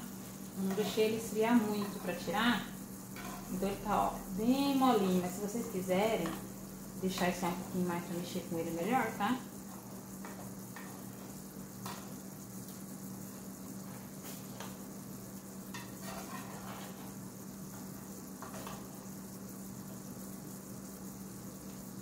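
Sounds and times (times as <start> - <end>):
steady hiss and hum: 0.0 - 22.0
knife scraping metal pan: 16.0 - 17.0.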